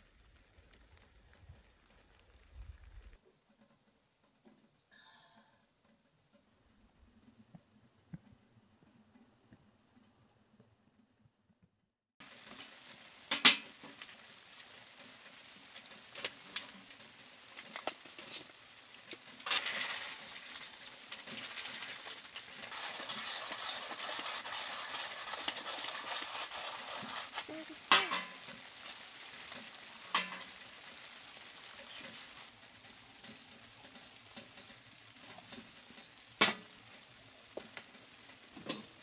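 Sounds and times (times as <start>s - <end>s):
coffee beans rattling: 12.2s - 36.9s
coffee grinder grinding: 17.7s - 30.6s.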